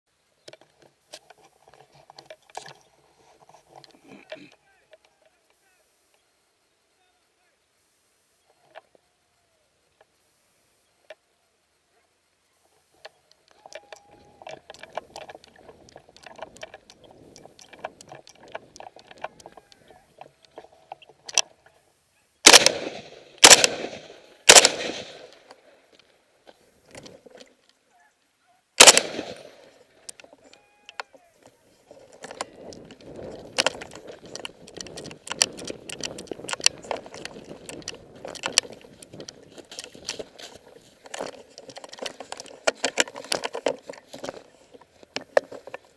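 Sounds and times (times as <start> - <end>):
gunshots echoing: 22.4 - 25.5, 28.8 - 29.7
person running through brush: 31.8 - 45.9.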